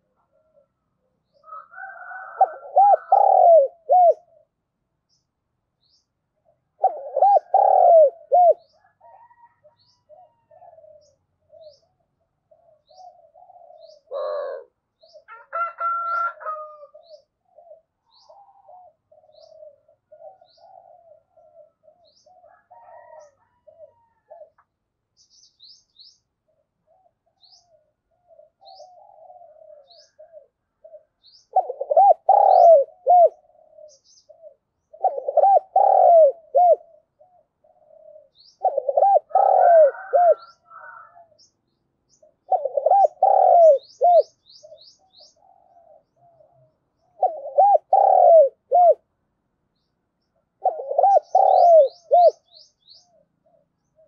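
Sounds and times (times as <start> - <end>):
dove cooing: 0.0 - 4.6, 6.4 - 24.7, 26.4 - 41.5, 42.1 - 49.1, 50.4 - 54.0.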